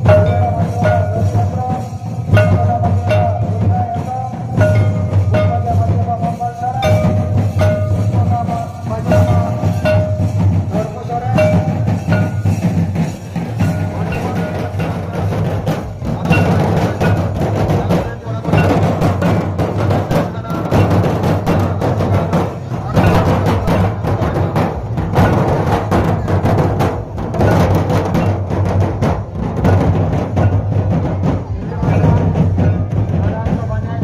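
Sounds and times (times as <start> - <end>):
drums beaten in steady rhythm: 0.0 - 34.0
wavering melody line: 4.6 - 12.7.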